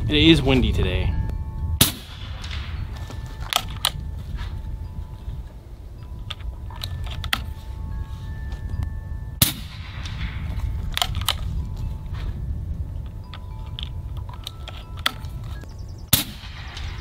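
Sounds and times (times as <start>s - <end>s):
wind rumble on microphone: 0.0s - 17.0s
air rifle shot: 1.8s - 3.0s, 9.4s - 11.4s, 16.1s - 17.0s.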